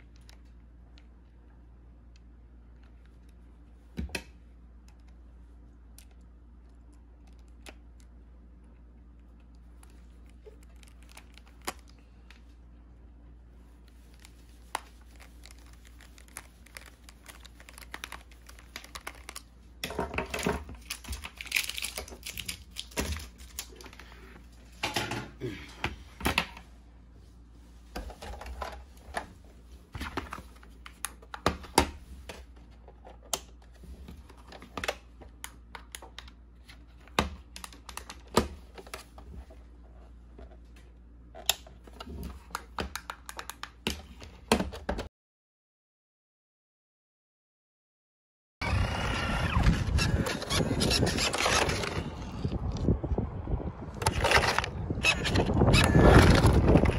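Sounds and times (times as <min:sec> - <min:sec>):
plastic rattling and rubbing: 0:13.7 - 0:24.1, 0:49.4 - 0:52.9, 0:53.9 - 0:56.9.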